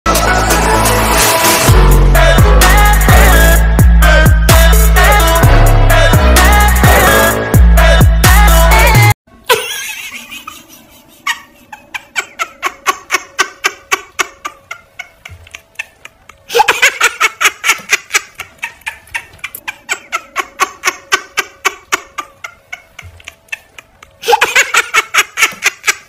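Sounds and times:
person laughing hard: 8.9s - 26.0s.

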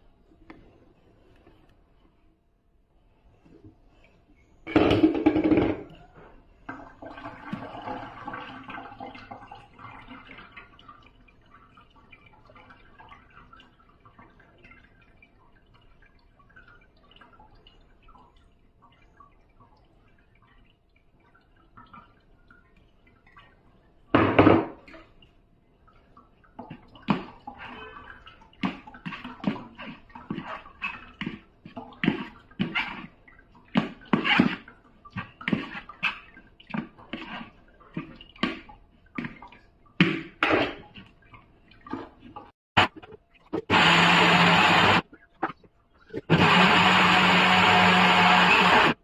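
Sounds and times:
spoon stirring and scraping paste: 28.6s - 39.4s.

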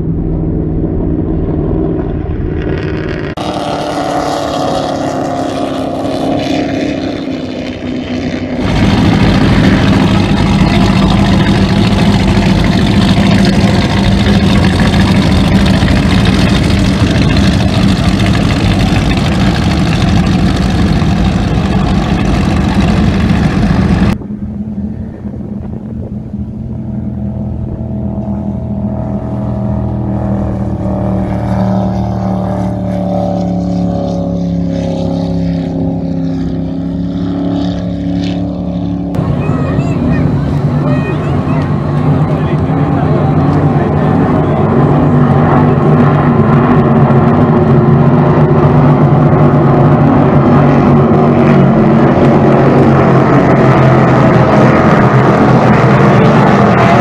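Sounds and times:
distant powerboats passing: 0.0s - 57.0s
powerboat engine deep hum: 0.0s - 57.0s.

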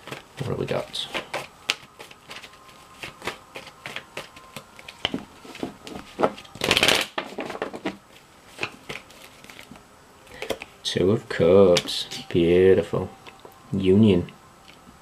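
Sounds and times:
cards being shuffled: 0.0s - 10.8s.

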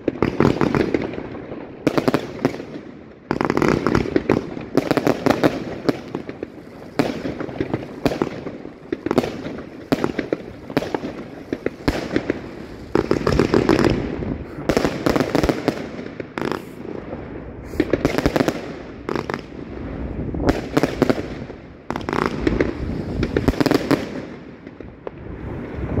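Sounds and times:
fireworks launch thumps and bursts: 17.7s - 19.4s.

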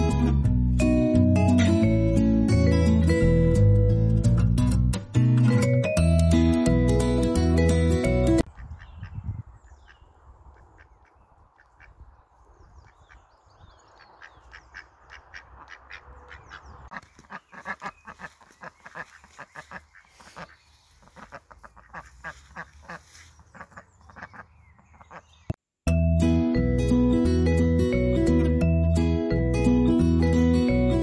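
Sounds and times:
duck calling: 14.2s - 25.4s.

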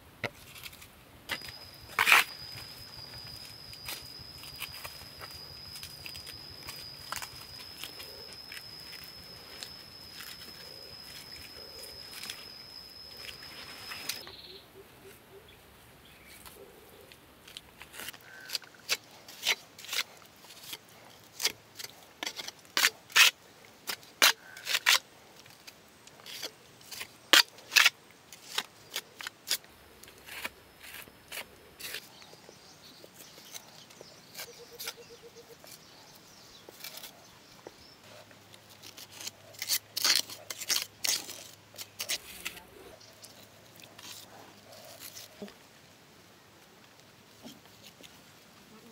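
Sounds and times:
trowel clicking and scraping mud: 0.3s - 14.2s, 17.5s - 32.5s, 33.1s - 35.9s, 38.6s - 45.4s
steady high whine: 0.7s - 14.3s.

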